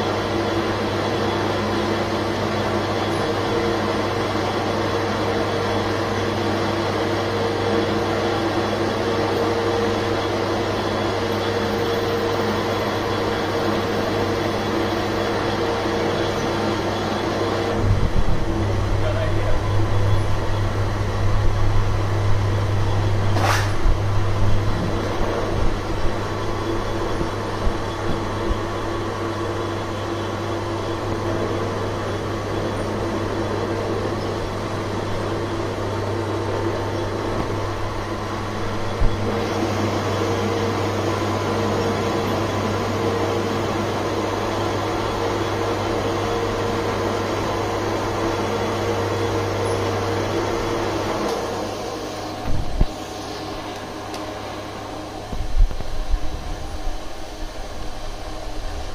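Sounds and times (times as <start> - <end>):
metal lathe humming: 0.0 - 58.9
sharp knock: 23.4 - 23.8.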